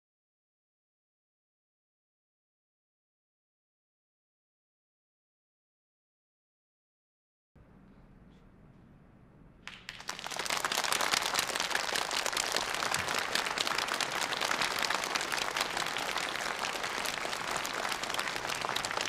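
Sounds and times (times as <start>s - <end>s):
large audience applauding: 9.7s - 19.0s.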